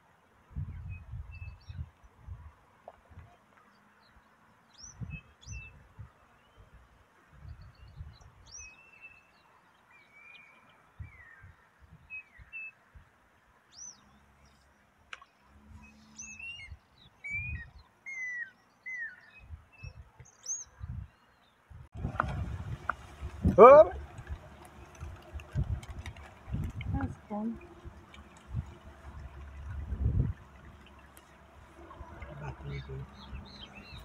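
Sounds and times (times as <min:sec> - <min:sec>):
birds chirping and whistling: 0:15.8 - 0:21.3, 0:32.6 - 0:34.0
low rumbles: 0:21.9 - 0:34.0.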